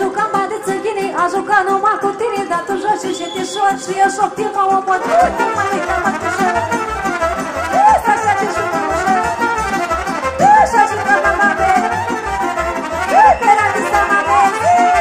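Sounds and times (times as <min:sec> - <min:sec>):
live band dance music: 0:02.3 - 0:15.0
trumpet melody: 0:05.0 - 0:15.0.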